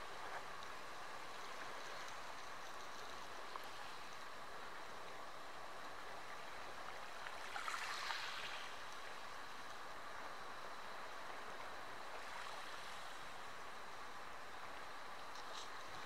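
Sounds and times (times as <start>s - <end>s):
sea lapping at shore: 5.7s - 13.8s.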